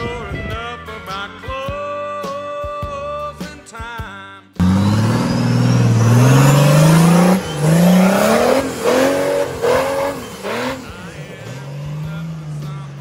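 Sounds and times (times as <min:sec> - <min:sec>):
buggy engine revving hard: 0:04.6 - 0:13.0.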